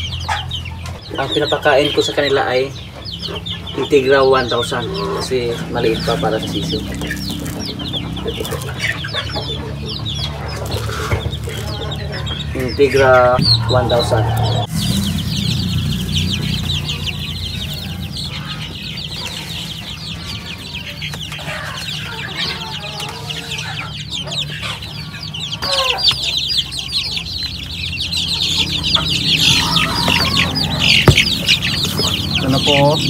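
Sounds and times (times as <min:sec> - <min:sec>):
chicks peeping: 0:00.0 - 0:33.0
lower chick calls: 0:00.0 - 0:33.0
sharp knock: 0:31.0 - 0:31.4.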